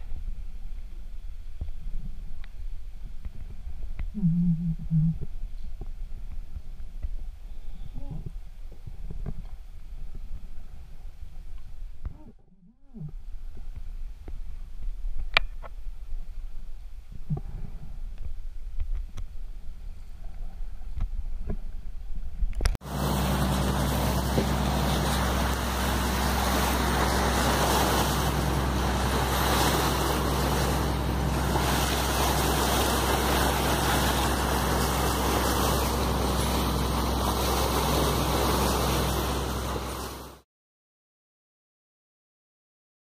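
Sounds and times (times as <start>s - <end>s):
muffled low rumble: 0.0s - 40.4s
boat engine running: 22.8s - 40.4s
rushing water: 22.8s - 40.4s.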